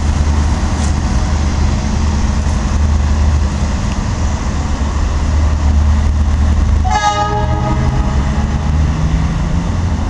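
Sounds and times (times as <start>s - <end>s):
steady low rumble: 0.0s - 10.0s
locomotive horn blast: 6.8s - 8.9s.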